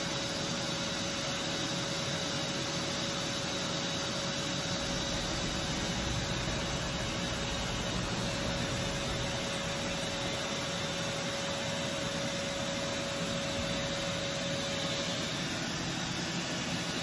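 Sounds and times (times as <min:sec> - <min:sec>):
machine hissing: 0:02.8 - 0:17.0
machine whining: 0:03.4 - 0:17.0.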